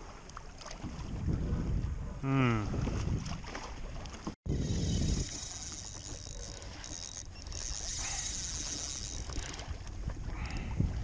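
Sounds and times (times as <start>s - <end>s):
wind noise on microphone: 0.7s - 11.0s
fishing reel drag buzzing: 4.5s - 10.8s.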